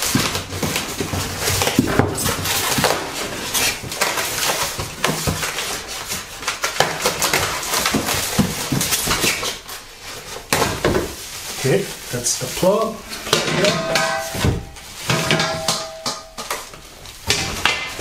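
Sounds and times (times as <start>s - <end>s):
foam rubbing: 0.0s - 6.4s
plastic bag crinkling: 0.0s - 13.1s.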